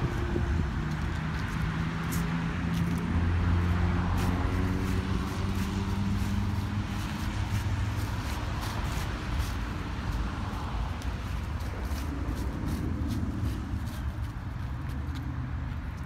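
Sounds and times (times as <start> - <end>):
footsteps on dry leaves: 0.0 - 16.0.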